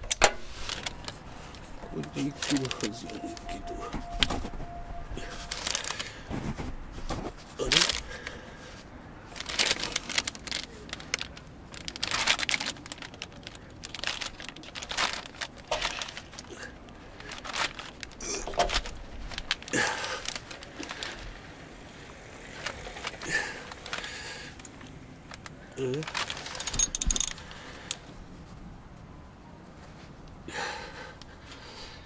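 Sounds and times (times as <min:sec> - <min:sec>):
metal clinks: 0:26.4 - 0:27.4
ratchet wrench clicking: 0:26.6 - 0:27.4.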